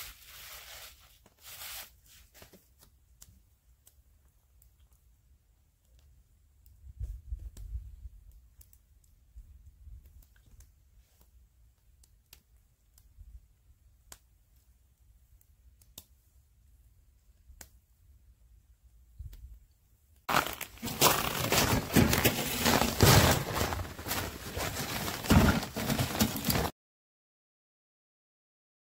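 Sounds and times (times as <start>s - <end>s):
footsteps crunching in snow: 20.3s - 26.7s
sled runners scraping over snow: 20.3s - 26.7s.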